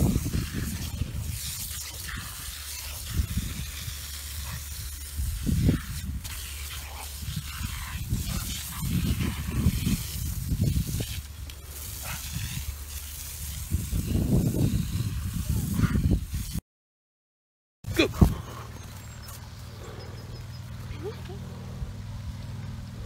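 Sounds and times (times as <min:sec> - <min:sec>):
water jet hissing: 0:00.0 - 0:15.7.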